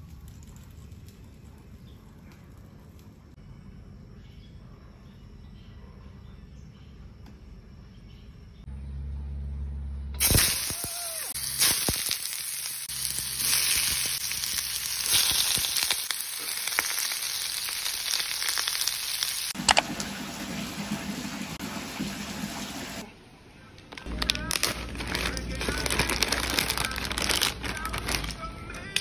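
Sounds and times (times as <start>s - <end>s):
vegetables sizzling in hot oil: 10.2s - 19.6s.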